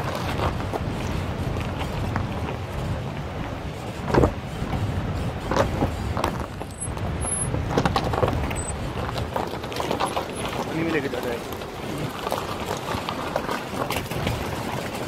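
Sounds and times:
tyres rumbling on gravel: 0.0s - 15.0s
wheels knocking on rocks: 5.4s - 15.0s.

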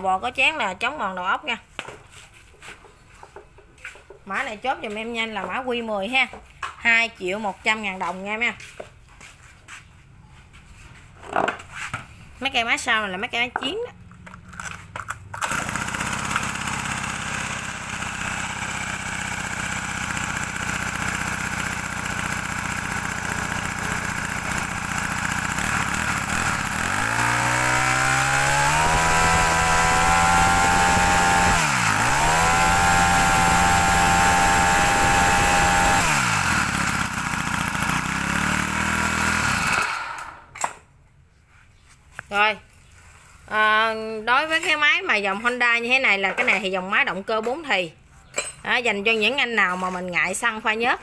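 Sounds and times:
brush cutter engine idling and revving: 15.3s - 40.5s.

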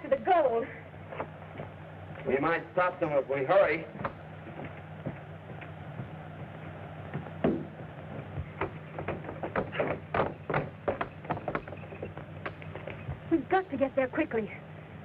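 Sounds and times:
film soundtrack hiss and hum: 0.0s - 15.0s
short knocks: 4.0s - 13.2s.

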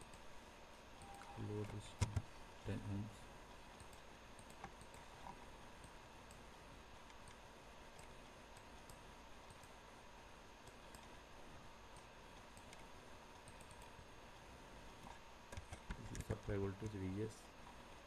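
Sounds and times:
faint steady hum: 0.0s - 18.0s
low hiss: 0.0s - 18.0s
mouse and keyboard clicks: 1.0s - 2.3s, 3.8s - 9.8s.

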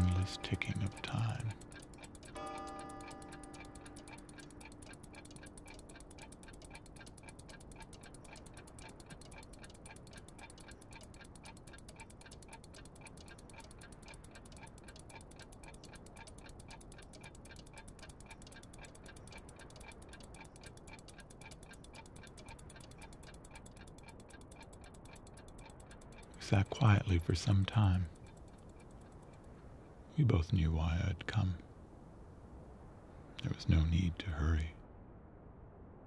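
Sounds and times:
mechanical clocks ticking: 0.0s - 31.6s, 33.4s - 34.7s.

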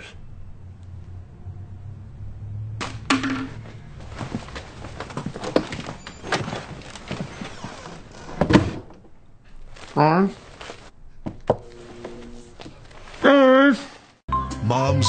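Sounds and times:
knocks thumps and scuffles: 2.8s - 7.7s
door opening: 5.0s - 9.1s.

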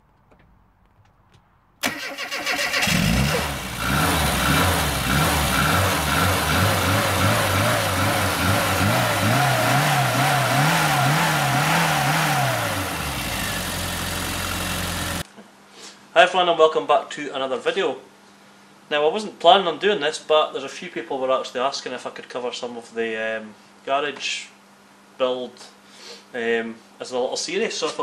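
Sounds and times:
car engine cranking: 1.8s - 15.2s
car engine revving: 1.8s - 15.2s
car engine idling: 2.8s - 15.2s.

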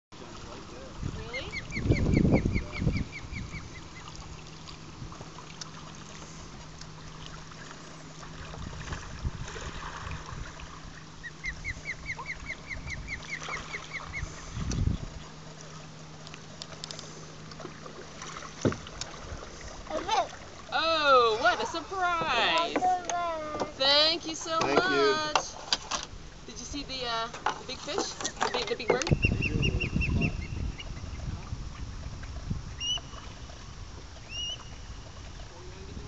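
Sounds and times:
osprey whistled chirps: 29.1s - 31.0s, 32.8s - 33.2s, 34.3s - 34.9s.

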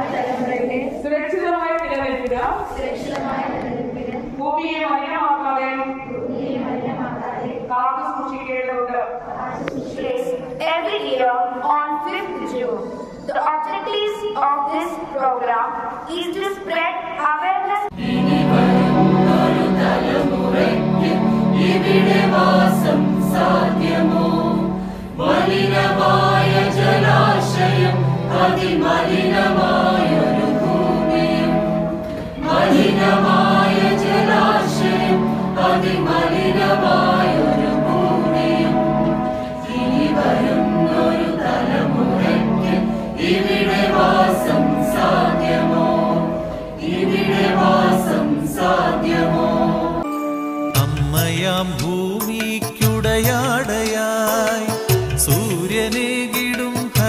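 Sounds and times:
women singing in unison: 2.4s - 4.4s, 17.9s - 50.1s
sustained low notes: 18.0s - 50.0s.

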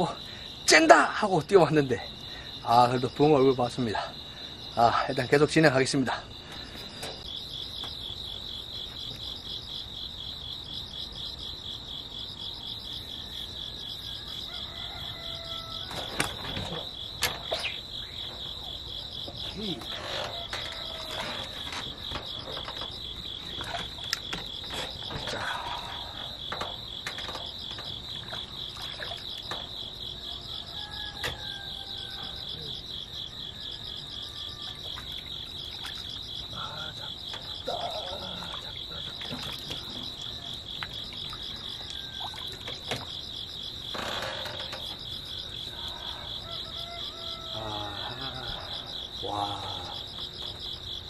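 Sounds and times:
crickets trilling: 0.0s - 51.0s
frog calls: 12.1s - 51.0s.

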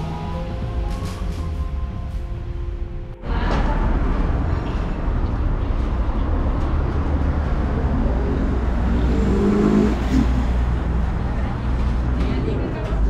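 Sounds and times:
engine note rising and falling: 0.0s - 11.9s
rumble of vehicle engines: 0.0s - 13.0s.

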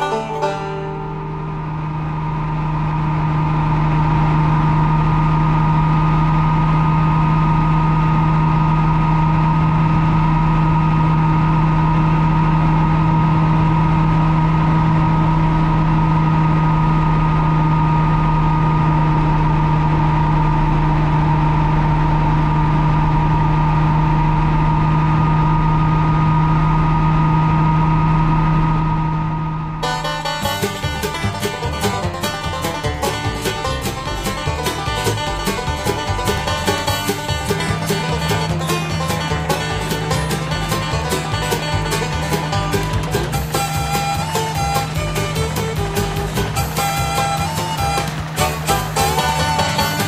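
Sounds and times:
helicopter engine and rotor drone: 1.3s - 29.8s, 42.8s - 49.0s.

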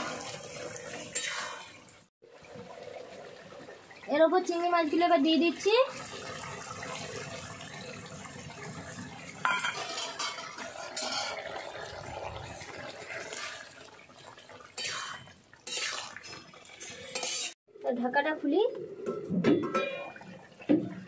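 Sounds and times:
curry bubbling: 0.0s - 17.6s
metal spatula stirring in pan: 1.0s - 1.8s, 14.8s - 17.6s.

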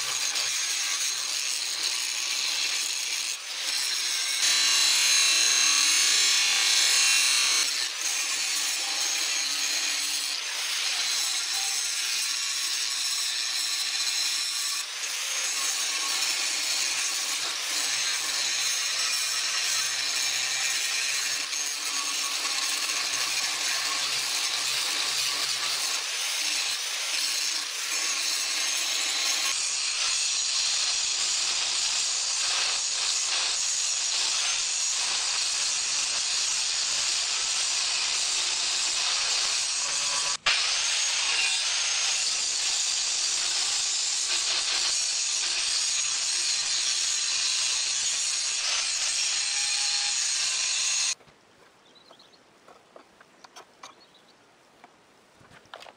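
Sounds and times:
angle grinder grinding metal: 0.0s - 51.2s.

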